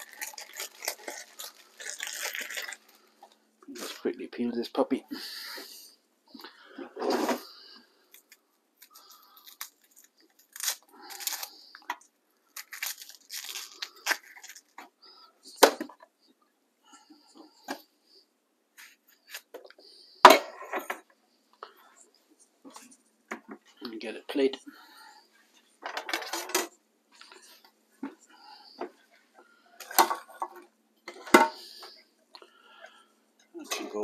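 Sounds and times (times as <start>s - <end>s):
onion skin crackling and tearing: 0.0s - 3.0s, 8.1s - 14.8s.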